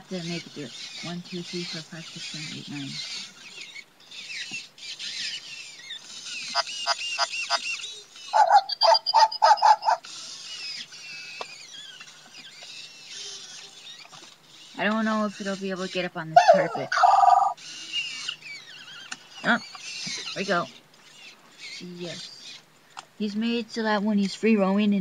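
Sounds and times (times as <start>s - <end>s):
robot dog electronic chirps: 6.3s - 10.0s
synthetic dog barks: 8.3s - 10.0s.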